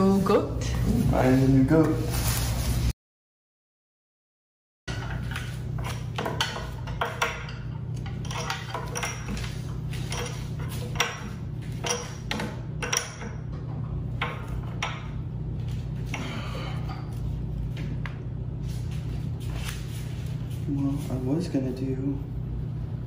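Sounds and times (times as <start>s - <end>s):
steady low hum: 4.9s - 23.0s.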